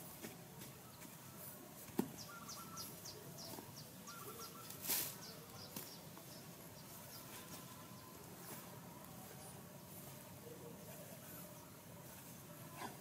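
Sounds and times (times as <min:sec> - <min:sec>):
bird chirping: 0:02.1 - 0:10.0
loose soil thrown out: 0:04.7 - 0:05.9.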